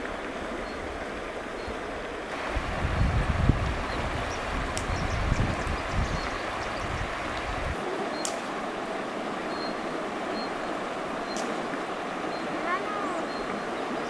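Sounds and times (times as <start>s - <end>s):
wind rumbling on microphone: 0.0s - 14.0s
steady rushing noise: 2.2s - 14.0s
sharp click: 8.2s - 8.5s.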